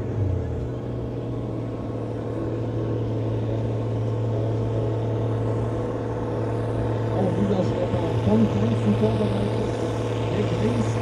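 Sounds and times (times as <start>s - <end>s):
diesel tractor engine running: 0.0s - 11.0s.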